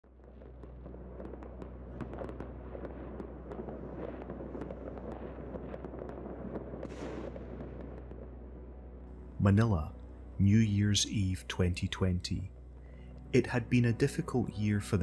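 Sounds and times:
fireworks crackling and popping: 0.0 - 8.6.

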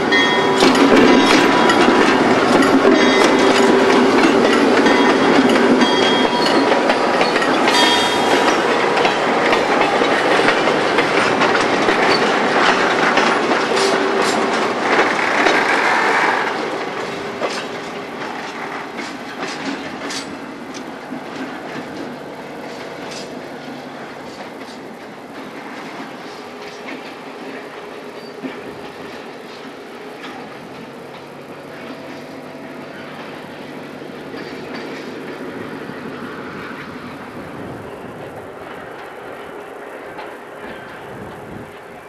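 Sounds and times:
wheels clicking over rail joints: 0.0 - 42.0
wheel squeals: 0.1 - 18.7.

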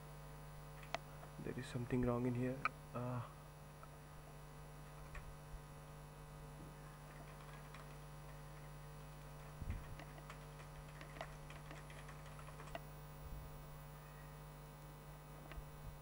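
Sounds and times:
steady electrical hum: 0.0 - 16.0
computer keyboard typing: 7.0 - 8.7, 9.4 - 12.9.

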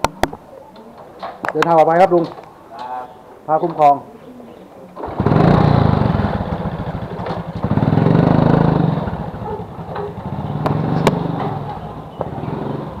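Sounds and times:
small motorcycle engine revving: 5.0 - 13.0.

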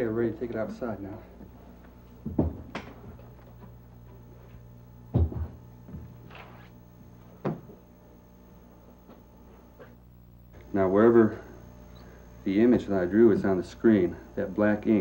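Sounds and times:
objects knocking on wooden bench: 2.2 - 3.2, 5.1 - 6.2, 7.4 - 7.8.

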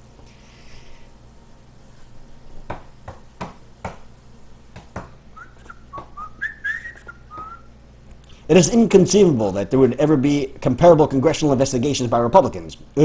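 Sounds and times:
short whistled notes: 5.4 - 7.7.

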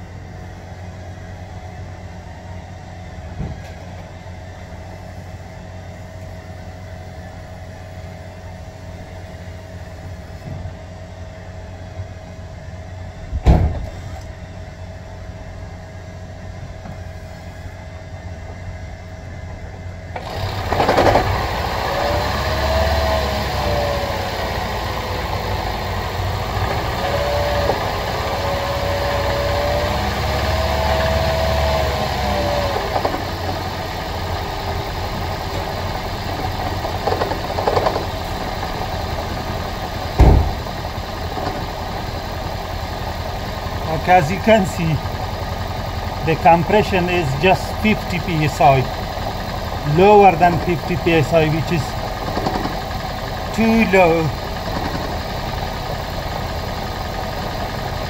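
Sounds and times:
car engine starting and running: 20.1 - 58.0
sharp knock: 40.2 - 40.6.

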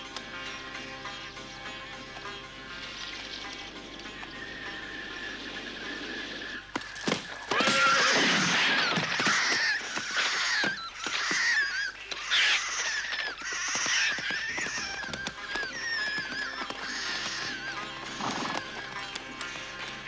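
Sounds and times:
shrill warbling animal cries: 7.5 - 19.8.

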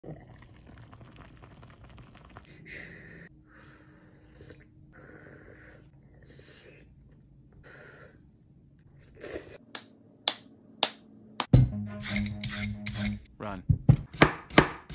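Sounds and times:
soup bubbling in a pot: 0.0 - 2.5.

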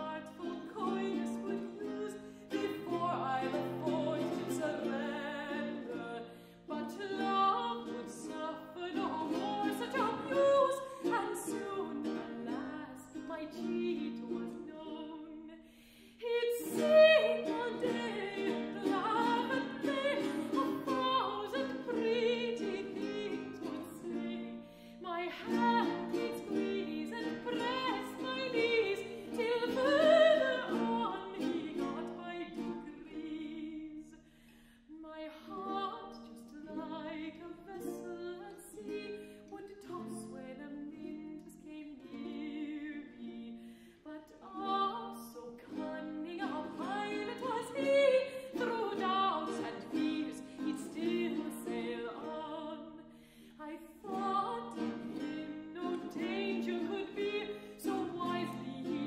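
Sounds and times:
woman singing with vibrato: 0.0 - 34.2, 34.9 - 59.0
guitar accompaniment: 16.6 - 33.0.

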